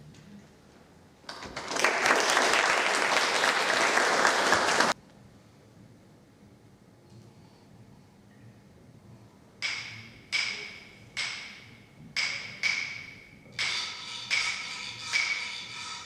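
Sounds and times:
high-pitched percussion strikes: 9.6s - 16.0s.

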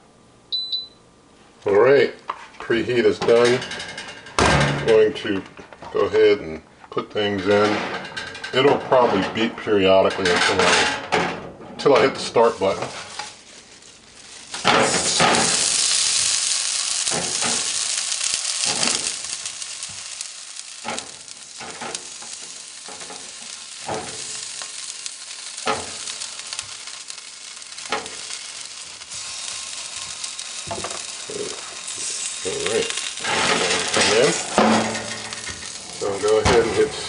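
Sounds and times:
knocks against rack: 4.4s - 4.9s, 33.4s - 35.6s
chicken sizzling: 12.2s - 37.0s.

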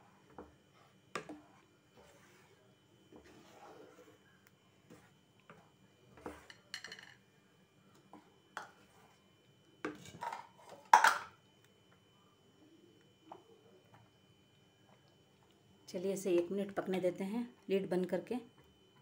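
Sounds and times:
spoon scraping pan: 0.4s - 4.3s, 4.9s - 7.0s.

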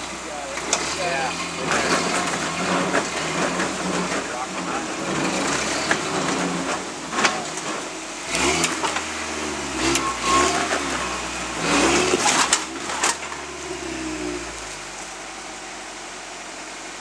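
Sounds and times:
truck scraping against rock: 0.0s - 15.4s
truck engine revving: 0.0s - 17.0s.

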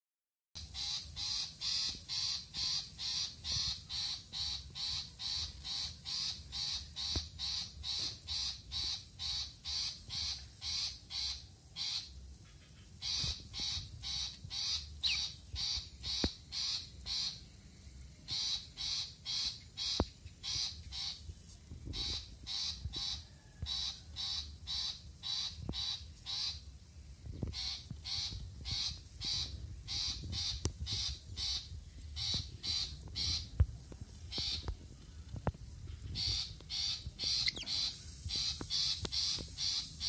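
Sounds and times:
bird chirping harshly: 0.6s - 17.4s, 35.9s - 40.0s.

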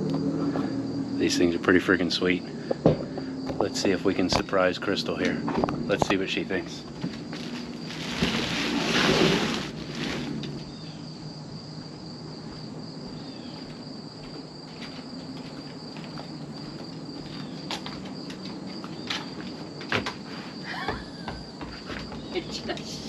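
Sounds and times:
insects chirring: 0.0s - 23.0s
plastic rustling: 7.0s - 10.7s.

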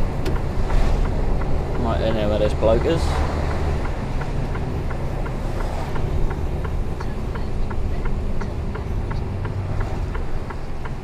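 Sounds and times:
truck diesel engine drone: 0.0s - 11.0s
turn signal ticking: 0.0s - 11.0s.

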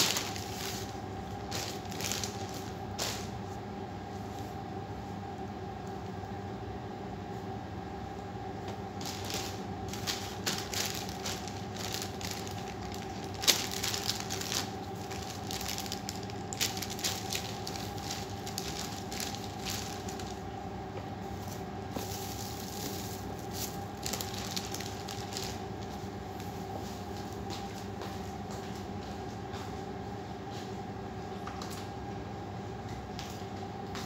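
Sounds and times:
plastic packaging crinkling: 0.0s - 3.4s, 9.0s - 20.4s, 21.5s - 26.0s
steady low hum: 0.0s - 34.0s.

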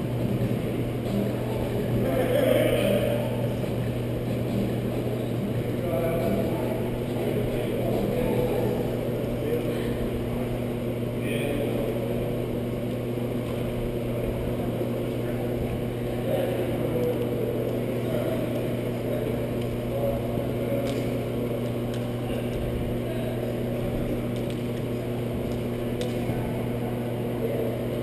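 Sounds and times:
building equipment humming: 0.0s - 28.0s.

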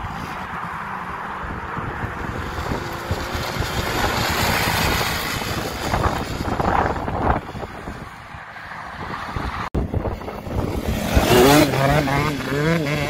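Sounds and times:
quad bike engine accelerating: 0.8s - 8.0s, 9.9s - 13.0s
wind buffeting microphone: 1.4s - 13.0s.

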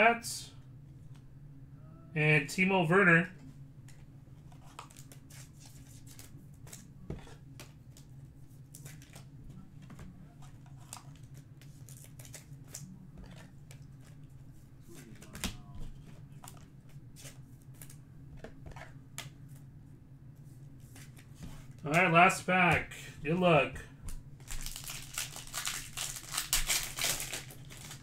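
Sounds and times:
low steady hum: 0.0s - 28.0s
trading cards being handled: 3.9s - 19.7s, 24.1s - 28.0s.

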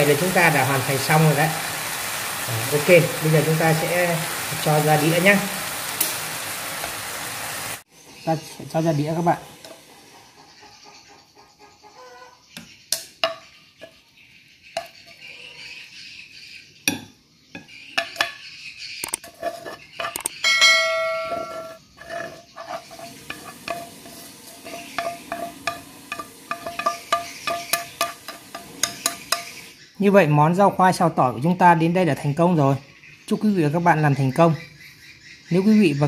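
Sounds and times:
chopsticks scraping a pan: 19.2s - 20.3s, 21.2s - 29.7s
bell-like chime: 20.4s - 21.8s.

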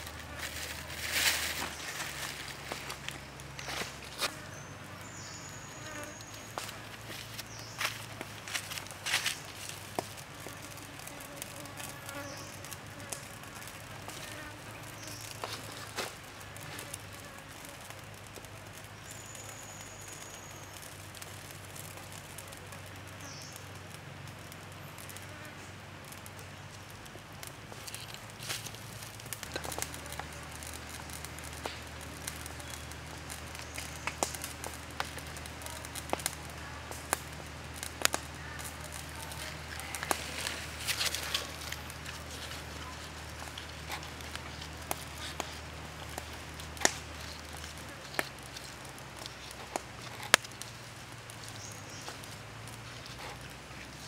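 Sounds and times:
charcoal ticking and crackling: 0.0s - 54.0s
insect buzzing: 3.6s - 9.2s, 10.4s - 15.8s.

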